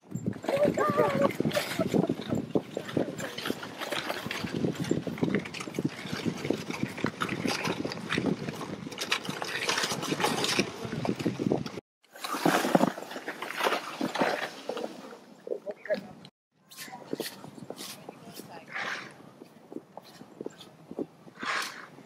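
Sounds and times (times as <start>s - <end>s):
plastic sled scraping snow: 0.4s - 15.3s
footsteps crunching in snow: 16.7s - 22.0s.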